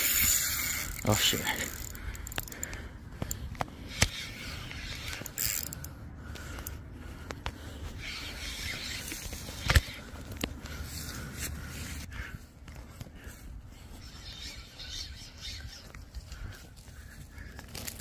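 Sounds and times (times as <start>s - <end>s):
fishing reel clicking and scraping: 0.0s - 6.8s, 8.0s - 11.1s.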